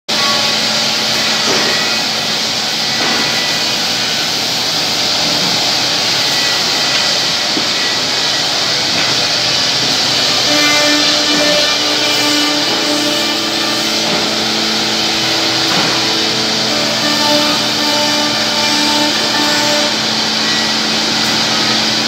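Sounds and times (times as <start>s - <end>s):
machine routing wood: 5.2s - 22.0s.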